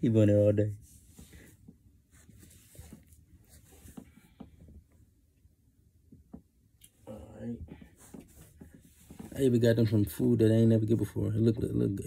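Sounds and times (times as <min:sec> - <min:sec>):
faint rustles: 0:00.7 - 0:05.1.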